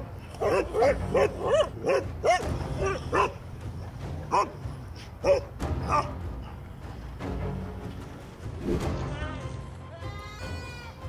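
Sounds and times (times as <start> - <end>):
dogs barking: 0.0 - 6.6.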